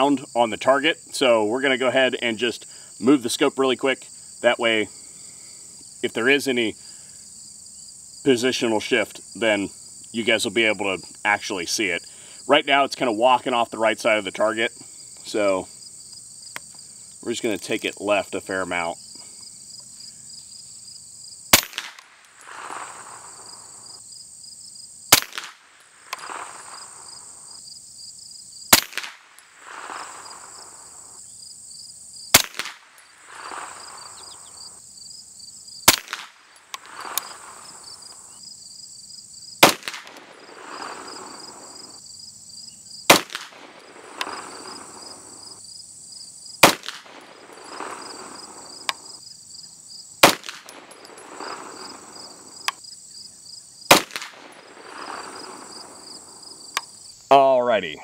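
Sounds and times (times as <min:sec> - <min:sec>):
insects buzzing: 0:00.0 - 0:58.0
suppressed gunshots with echo: 0:21.5 - 0:23.9, 0:25.1 - 0:27.4, 0:28.7 - 0:31.0, 0:32.3 - 0:34.4, 0:35.8 - 0:37.8, 0:39.6 - 0:41.9, 0:43.1 - 0:45.4, 0:46.6 - 0:49.2, 0:50.2 - 0:52.5, 0:53.9 - 0:56.4.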